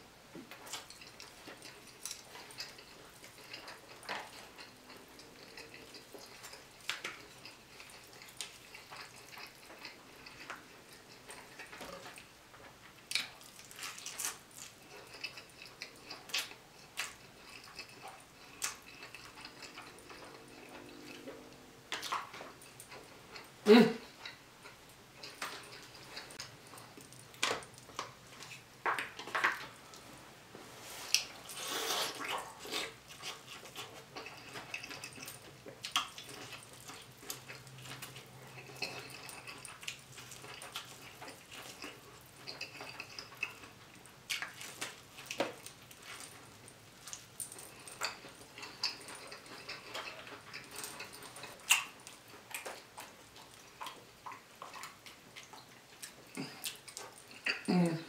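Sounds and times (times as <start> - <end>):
wet chewing: 0.4 - 30.0, 31.0 - 57.7
crab shells clicking and crackling: 32.9 - 57.7.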